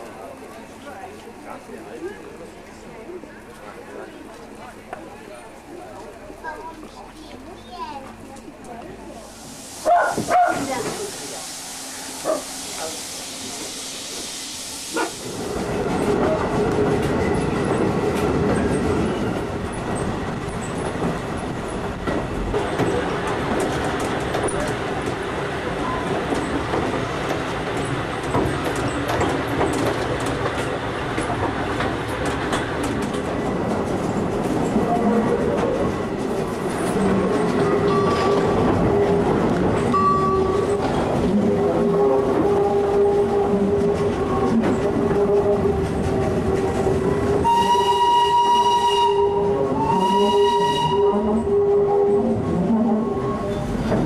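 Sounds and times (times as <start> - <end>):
tram wheels rumbling on rail: 0.0 - 54.0
steam locomotive whistle blasts: 47.4 - 52.2.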